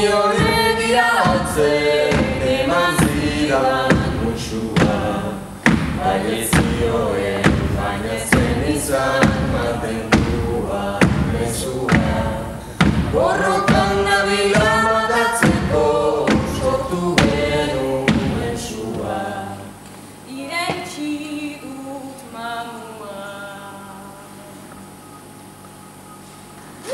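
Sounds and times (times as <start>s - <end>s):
steady beat thumps: 0.0s - 19.3s
mixed group singing: 0.0s - 19.8s.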